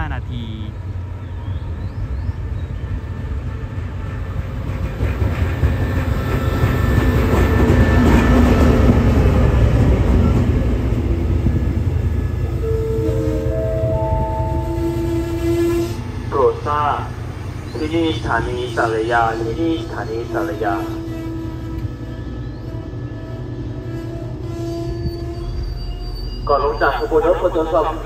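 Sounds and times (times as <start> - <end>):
train rumbling: 0.0 - 28.0
tones stepping up in pitch: 12.5 - 15.4.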